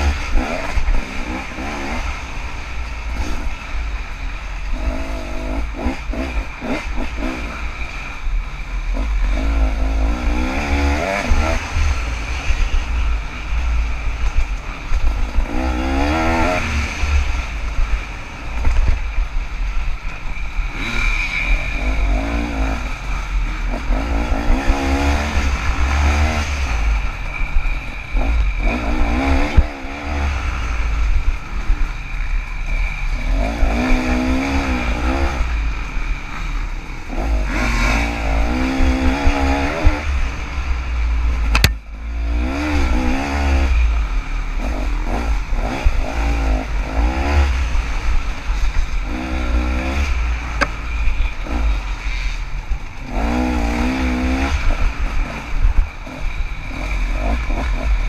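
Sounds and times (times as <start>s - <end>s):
dirt bike engine revving: 0.0s - 58.0s
sharp click: 41.5s - 41.8s.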